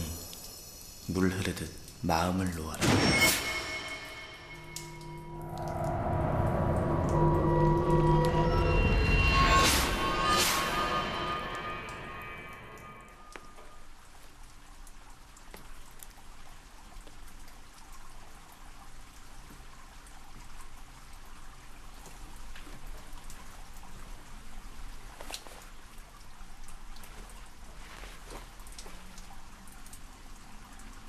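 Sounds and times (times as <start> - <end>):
shower water spraying: 0.0 - 13.3
water dripping: 0.0 - 31.0.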